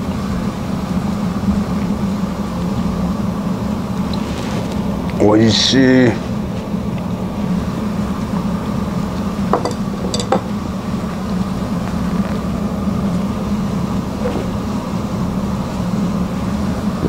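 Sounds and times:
ventilation fan hum: 0.0 - 17.0
tableware clinks: 9.6 - 10.5.

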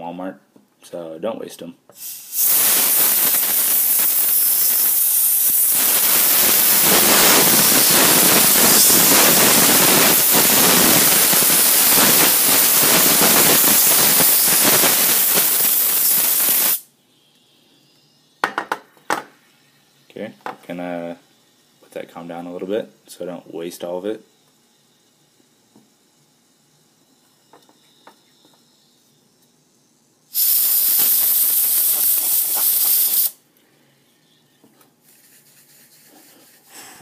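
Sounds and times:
compressed air spray hissing: 1.9 - 16.9, 29.8 - 33.4.

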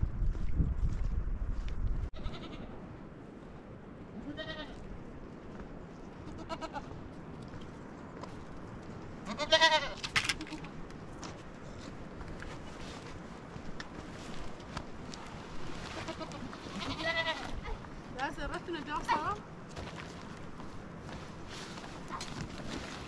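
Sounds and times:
goat bleating: 2.2 - 2.7, 4.2 - 4.8, 6.2 - 6.9, 9.2 - 10.7, 15.9 - 17.8.

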